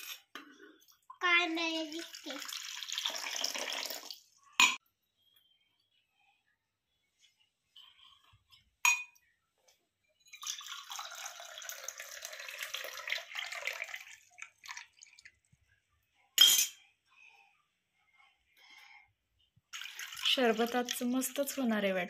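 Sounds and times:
drink pouring and splashing: 1.7 - 4.3, 10.3 - 15.5, 19.7 - 21.6.

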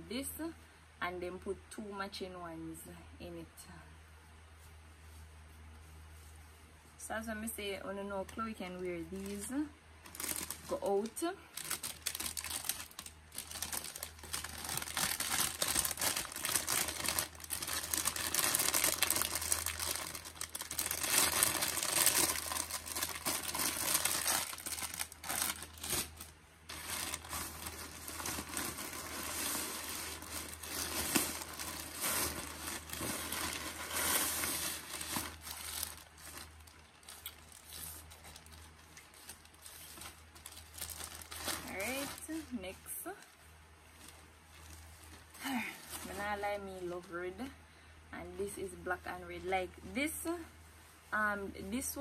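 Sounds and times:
plastic packaging crinkling: 8.2 - 46.4.

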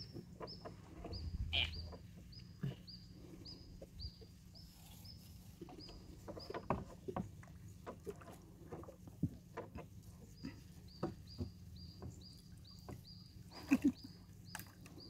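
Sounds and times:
bamboo pole knocking on boat: 10.9 - 13.1.

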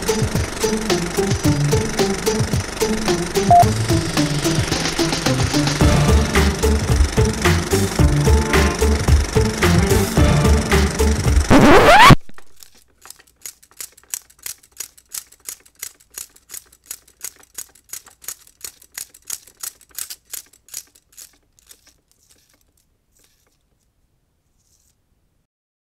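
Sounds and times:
film projector reel clicking: 0.0 - 11.5, 12.4 - 23.9
music: 0.0 - 11.9.

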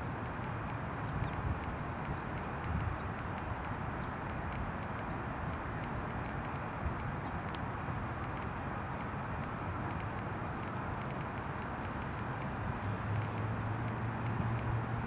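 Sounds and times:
distant traffic rumble: 0.0 - 15.0
faint high ticks: 0.1 - 15.0.

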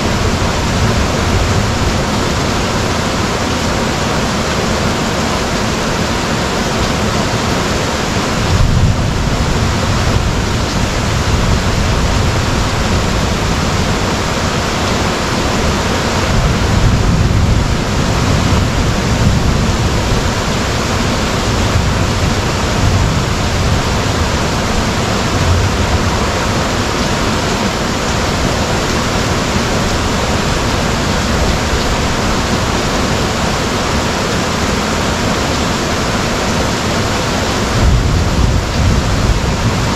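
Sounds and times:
low thunder rumble: 0.0 - 3.8, 8.3 - 14.7, 15.6 - 33.4, 37.4 - 39.9
heavy rain pouring: 0.0 - 39.9.

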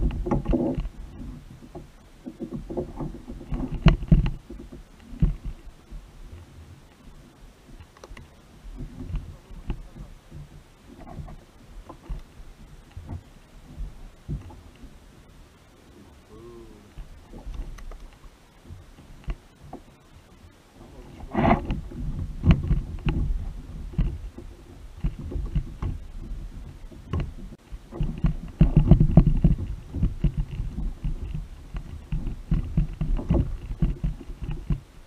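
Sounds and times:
knocks and thumps on a kayak: 0.0 - 15.2, 16.9 - 20.0, 20.8 - 35.0.

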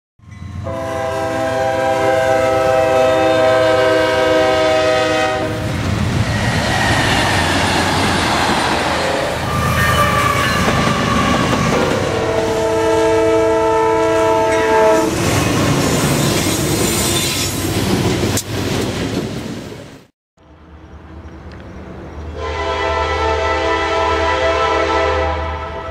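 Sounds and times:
passing freight train rumble: 0.2 - 25.9
locomotive air horn chord: 0.6 - 5.7, 9.5 - 15.1, 22.3 - 25.9
high wheel squeal: 9.2 - 11.6, 15.9 - 17.6.

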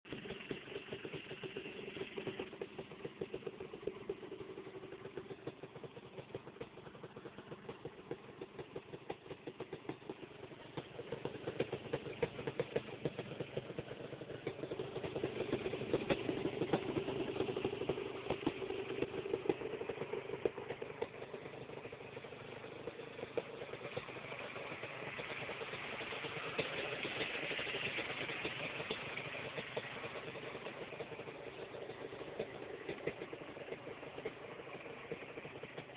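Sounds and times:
two-stroke engine idling: 0.0 - 35.9.

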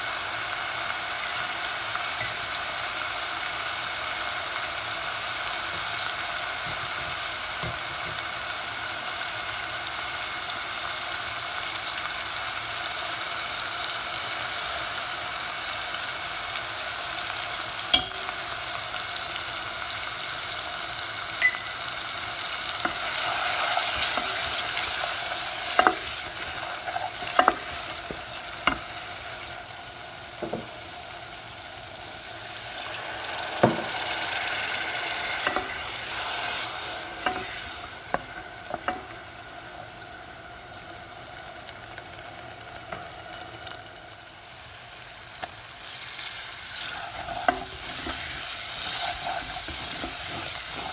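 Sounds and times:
oil sizzling in a pot: 0.0 - 50.9
spoon knocking on metal pot: 18.0 - 18.2, 21.4 - 21.8.

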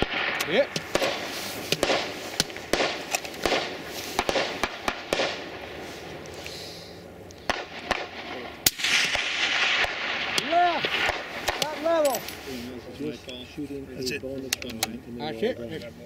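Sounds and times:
distant gunfire pops: 0.0 - 5.6, 7.4 - 11.8
steady background hiss: 0.0 - 16.0.

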